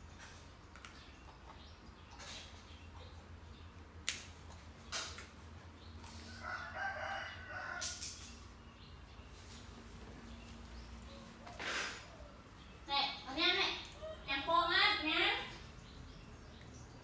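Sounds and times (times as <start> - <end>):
rooster crowing: 6.3 - 8.0.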